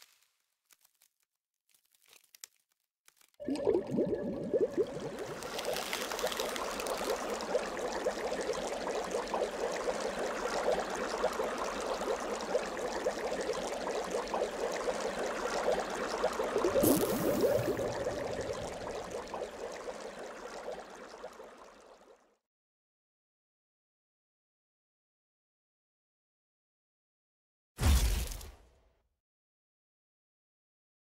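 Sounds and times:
slime squelching: 0:04.7 - 0:07.5, 0:16.6 - 0:19.1.

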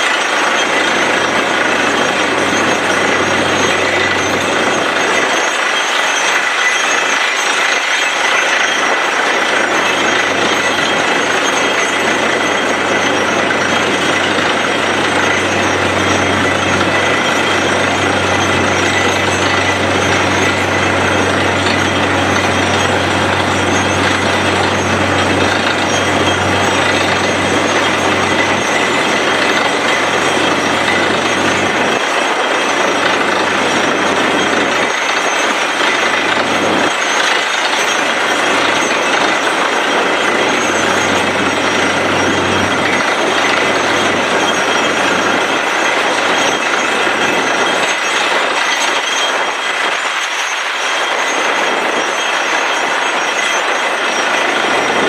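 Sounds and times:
rig machinery running: 0:00.0 - 0:55.0
low engine hum: 0:11.9 - 0:32.0.

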